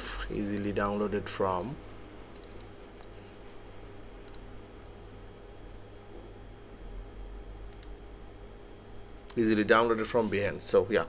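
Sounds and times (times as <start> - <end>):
low steady hum: 0.0 - 11.0
computer mouse clicks: 2.3 - 3.1, 4.2 - 4.5, 7.7 - 8.0.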